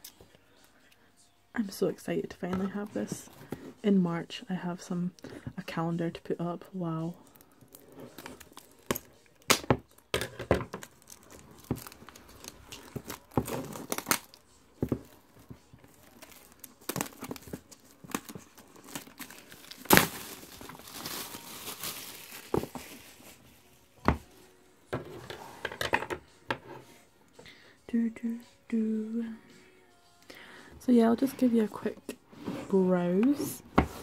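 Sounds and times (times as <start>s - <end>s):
plastic rustling: 10.3s - 24.0s
plastic wrap crinkling: 10.7s - 24.0s
plastic wrap ripping: 10.8s - 14.4s, 15.8s - 23.6s.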